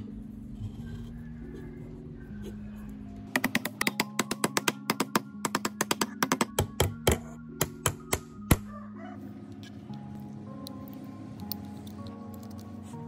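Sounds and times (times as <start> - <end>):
hammer tapping metal: 3.4 - 8.7.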